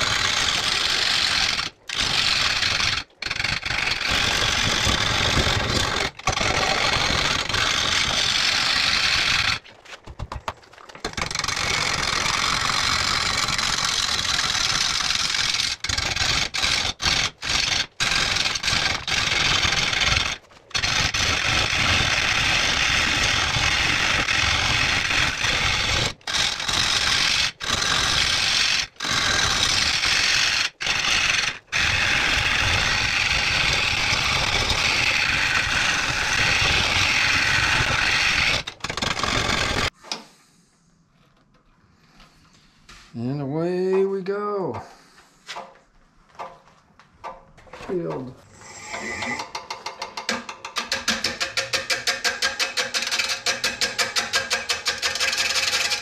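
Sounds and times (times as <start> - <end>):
gouge scraping wood on lathe: 0.0 - 9.7, 11.0 - 40.0, 48.6 - 56.0
lathe rumble: 11.2 - 39.9, 48.6 - 56.0.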